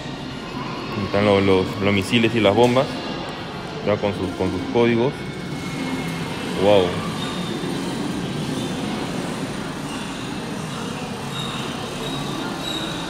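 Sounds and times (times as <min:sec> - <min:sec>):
exhibition hall hum: 0:00.0 - 0:13.0.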